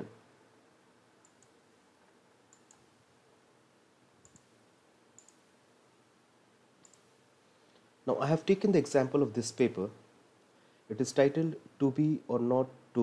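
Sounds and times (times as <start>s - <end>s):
computer mouse clicks: 1.2s - 1.6s, 2.5s - 2.9s, 4.2s - 4.6s, 5.2s - 5.5s, 6.8s - 7.1s.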